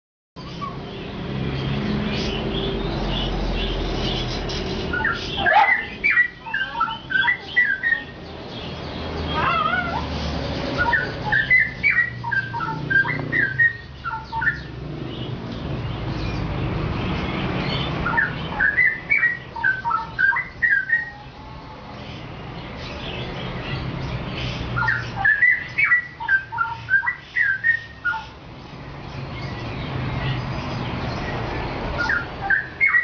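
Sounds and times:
bird singing whistled phrases: 4.9s - 8.2s, 10.8s - 14.7s, 18.0s - 21.2s, 24.8s - 28.3s, 32.0s - 33.0s.

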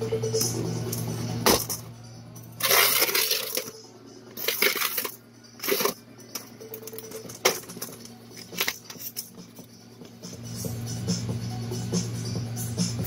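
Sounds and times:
steady low hum: 0.0s - 13.0s
package rustling: 4.4s - 6.0s.

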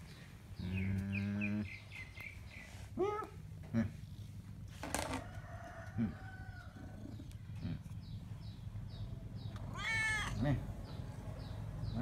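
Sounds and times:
small birds chirping: 0.0s - 4.8s, 5.4s - 12.0s
rooster crowing: 5.1s - 7.0s.

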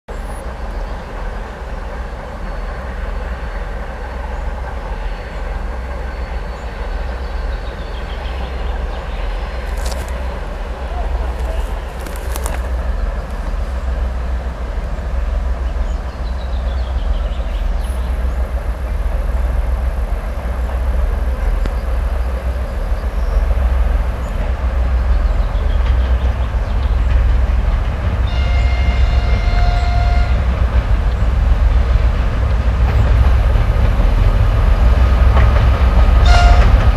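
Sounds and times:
diesel locomotive low rumble: 0.1s - 36.9s
train wheels and wagons: 0.1s - 36.9s.

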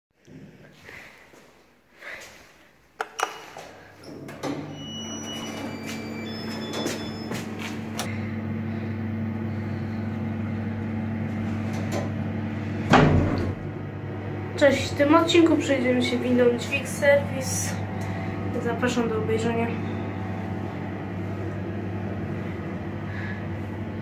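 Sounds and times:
elevator drive humming: 4.0s - 24.0s.

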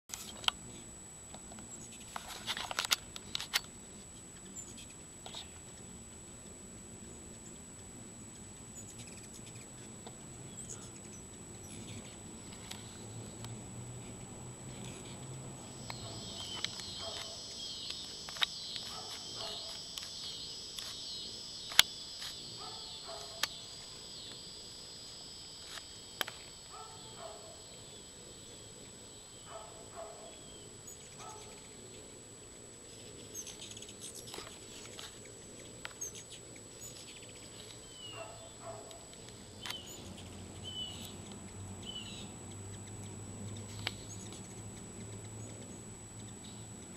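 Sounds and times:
thin high whine: 0.1s - 41.2s
hummingbirds chirping: 1.5s - 46.9s
sharp clicks: 14.2s - 27.9s.

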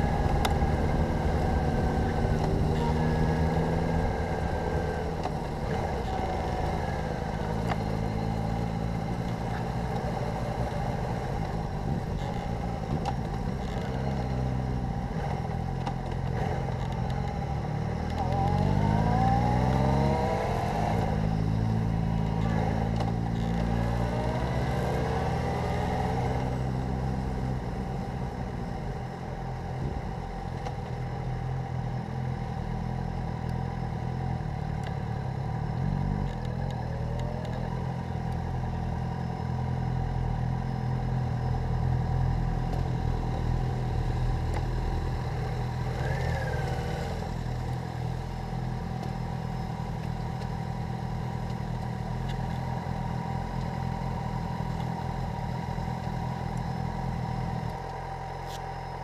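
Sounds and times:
motorcycle engine revving: 0.0s - 27.8s, 41.0s - 59.0s.

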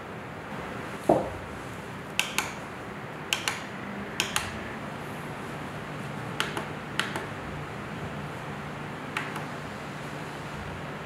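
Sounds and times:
fan motor humming: 0.0s - 11.0s
push buttons clicking: 2.2s - 2.6s, 3.3s - 4.6s, 6.4s - 7.3s, 9.1s - 9.5s.

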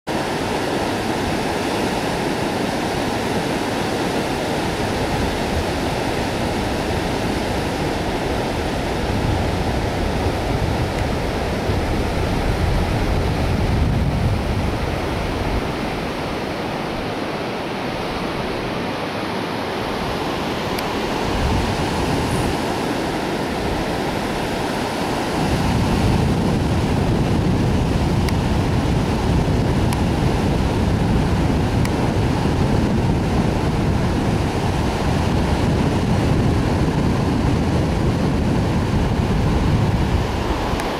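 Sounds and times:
surf waves breaking: 0.1s - 40.9s
wind buffeting microphone: 0.2s - 40.9s.

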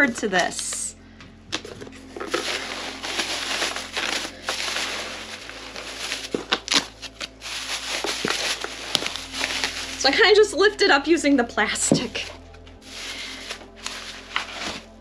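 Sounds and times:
plastic wrap crinkling: 1.5s - 10.4s, 12.0s - 15.0s.

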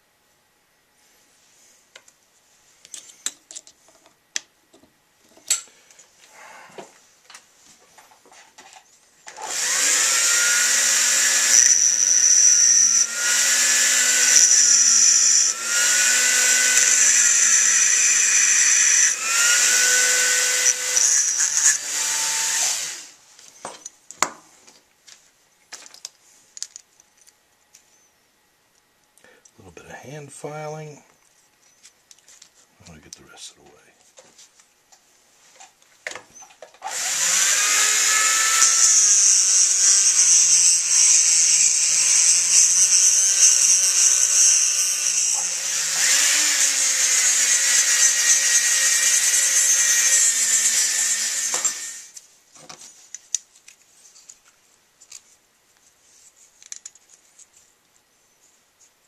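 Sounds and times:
rotary tool grinding metal: 9.4s - 23.1s, 36.8s - 52.2s.

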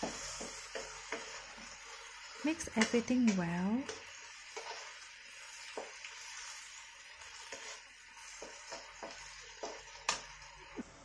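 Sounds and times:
spatula scraping and tapping pan: 0.0s - 10.9s
vegetables sizzling in a wok: 0.0s - 11.0s.

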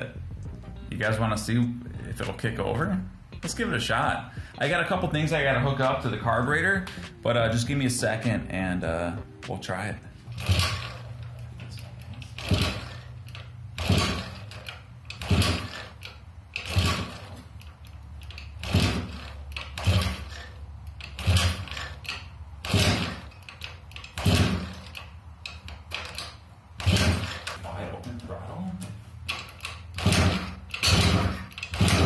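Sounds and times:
scooter kick-start clack and thump: 10.3s - 11.0s, 11.8s - 17.4s, 18.2s - 27.6s, 29.3s - 32.0s.

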